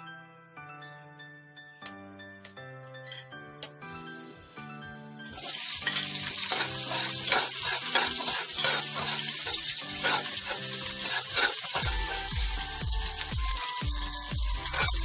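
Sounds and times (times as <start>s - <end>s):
hot oil sizzling: 5.3s - 15.0s
spatula stirring in pot: 6.0s - 12.8s.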